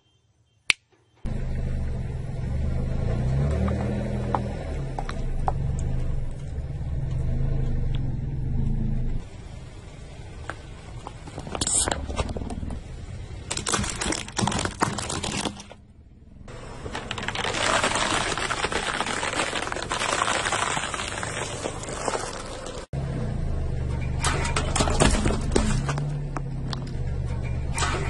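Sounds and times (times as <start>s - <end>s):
car engine low hum: 1.3s - 28.0s
plastic balls cracking and popping: 13.4s - 15.8s, 16.8s - 22.9s.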